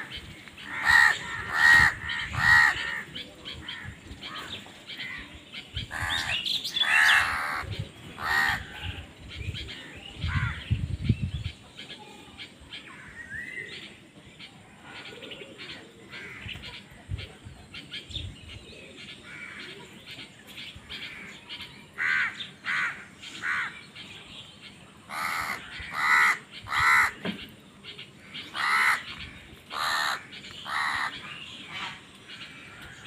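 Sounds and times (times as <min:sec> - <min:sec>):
crows cawing: 0:00.6 - 0:03.1, 0:08.2 - 0:08.9, 0:22.0 - 0:23.8, 0:25.1 - 0:27.2, 0:28.2 - 0:33.0.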